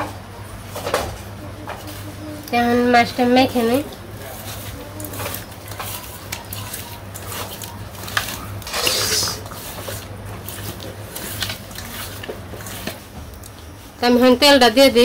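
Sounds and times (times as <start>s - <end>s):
hands squishing wet fish: 3.5s - 13.9s
scrape in metal bowl: 4.4s - 13.0s.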